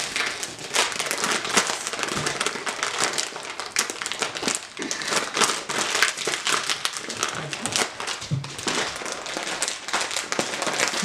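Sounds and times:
plastic snack bag crinkling: 0:00.0 - 0:11.0.

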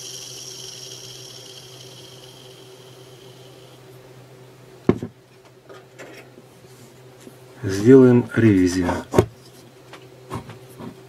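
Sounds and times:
bearing spinning with high whir: 0:00.0 - 0:04.7.

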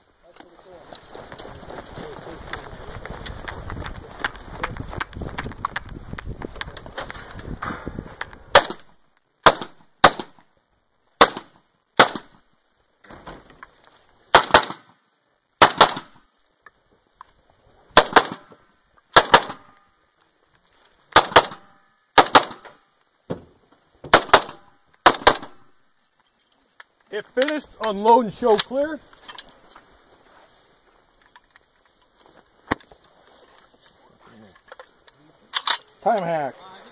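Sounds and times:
rifle shots: 0:08.5 - 0:10.4, 0:11.2 - 0:12.4, 0:14.3 - 0:14.9, 0:15.6 - 0:16.2, 0:18.0 - 0:18.5, 0:19.1 - 0:19.7, 0:21.2 - 0:22.8, 0:24.1 - 0:25.7.

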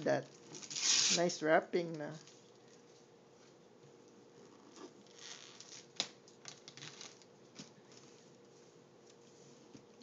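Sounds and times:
wrapping paper rustling and tearing: 0:00.5 - 0:01.4, 0:05.1 - 0:07.3.

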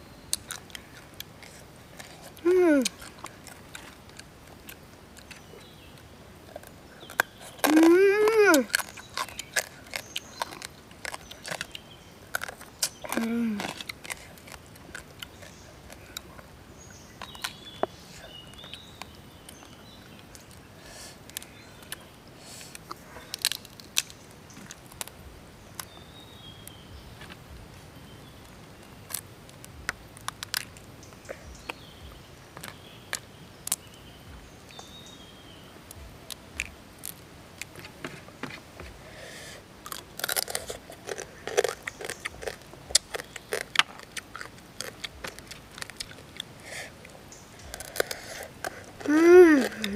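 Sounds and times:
quiet chewing: 0:00.2 - 0:49.9
crab shells cracking: 0:00.3 - 0:16.5, 0:22.7 - 0:25.2, 0:28.2 - 0:30.9, 0:39.8 - 0:49.9.

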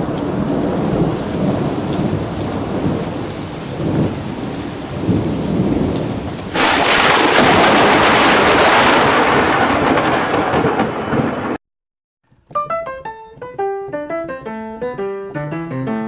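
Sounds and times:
rain: 0:00.0 - 0:11.6
rumbling thunder: 0:00.0 - 0:11.6.

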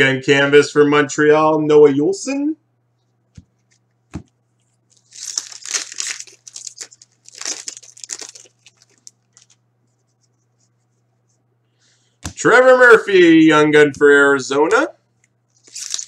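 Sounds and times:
wrapper tearing and crinkling: 0:04.9 - 0:09.6, 0:15.6 - 0:16.0.

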